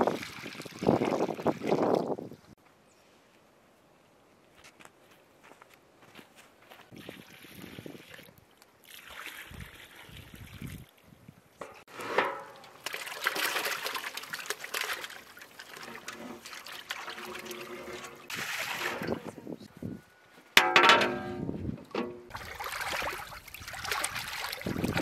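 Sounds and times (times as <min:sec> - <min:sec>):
water trickling into pans: 0:11.6 - 0:19.3, 0:22.3 - 0:25.0
water sloshing: 0:11.6 - 0:19.4, 0:22.3 - 0:25.0
chicken splashing into water: 0:12.8 - 0:17.2, 0:22.3 - 0:25.0.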